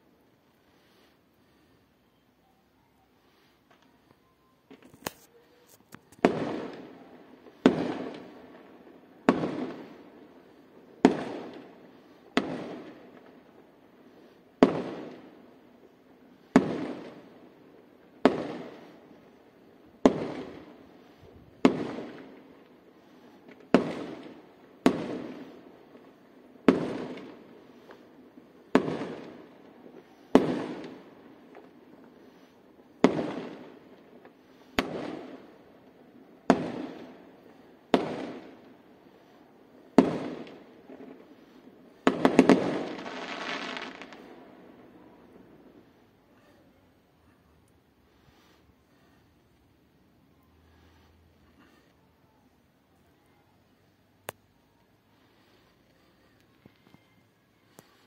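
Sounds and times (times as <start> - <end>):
faint fireworks pops: 0.2 - 58.0
fireworks bangs echoing: 6.0 - 46.0.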